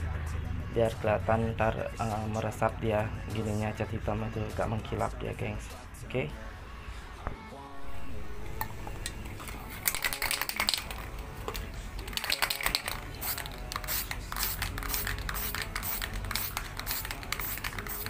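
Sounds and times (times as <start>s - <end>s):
spray can clicking: 8.6s - 18.0s
spray paint hissing: 12.1s - 18.0s.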